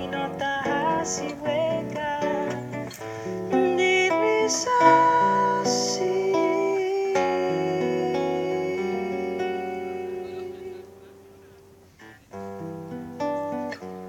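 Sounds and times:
woman singing into microphone: 0:00.0 - 0:11.2
acoustic guitar playing: 0:00.0 - 0:14.0.

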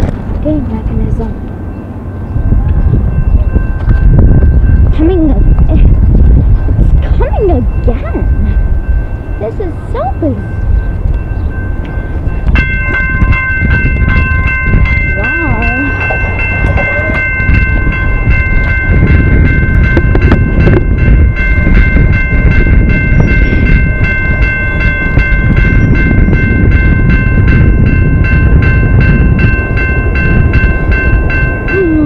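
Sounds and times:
passing train rumble: 0:00.0 - 0:32.0
railroad crossing bell ringing: 0:00.4 - 0:32.0.

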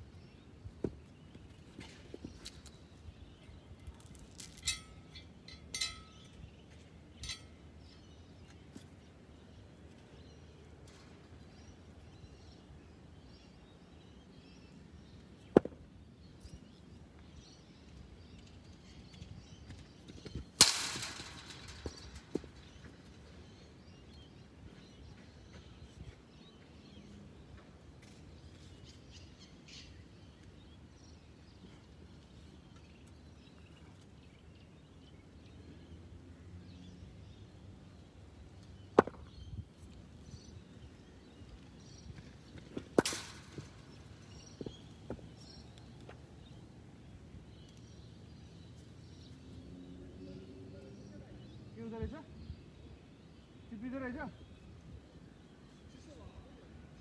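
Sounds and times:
birds chirping: 0:00.0 - 0:57.0
short rattle: 0:20.6 - 0:22.8
cricket ball impact crack: 0:39.0 - 0:39.3.

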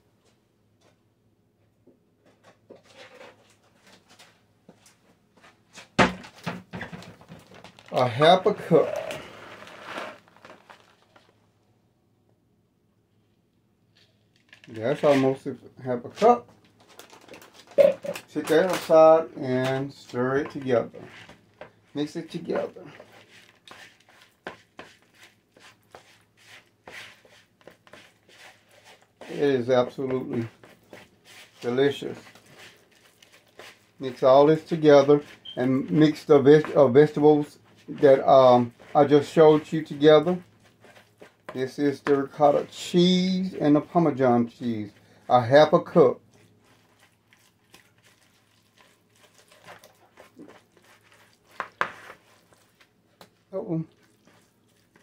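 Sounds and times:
wooden spoon scraping a bowl: 0:08.0 - 0:11.3, 0:17.8 - 0:55.0.

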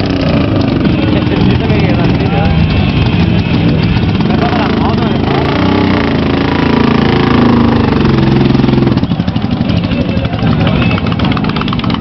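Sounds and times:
motorcycle engine revving and idling: 0:00.0 - 0:12.0.

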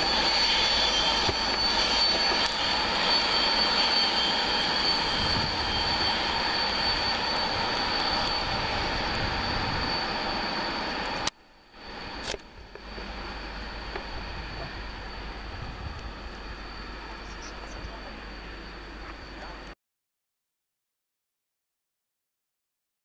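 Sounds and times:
train wheels on rails: 0:00.0 - 0:11.4
thin high-pitched whine: 0:00.0 - 0:19.8.

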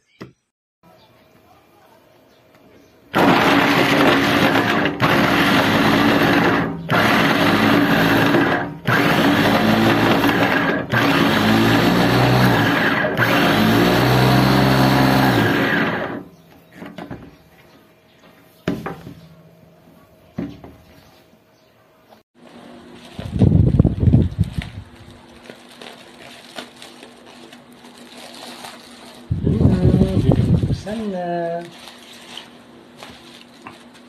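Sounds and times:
food processor motor chopping: 0:03.2 - 0:16.3.

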